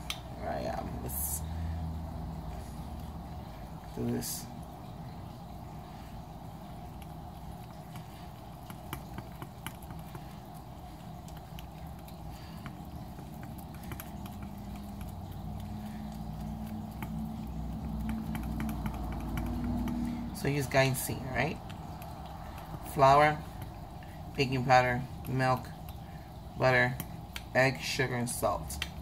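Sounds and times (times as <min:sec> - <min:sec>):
low hum: 0:00.0 - 0:27.5
fork stirring batter in glass: 0:04.6 - 0:27.8.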